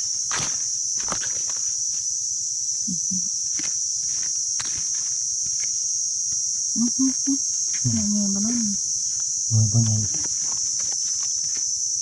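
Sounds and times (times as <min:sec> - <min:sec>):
rustles on forest floor: 0:00.0 - 0:02.2, 0:03.3 - 0:06.6, 0:10.1 - 0:12.0
insect chorus drone: 0:00.0 - 0:12.0.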